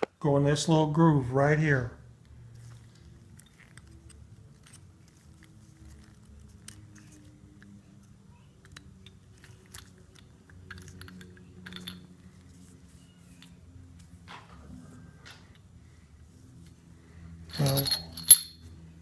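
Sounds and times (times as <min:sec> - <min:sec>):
gloved hands handling metal part: 0:17.5 - 0:18.7.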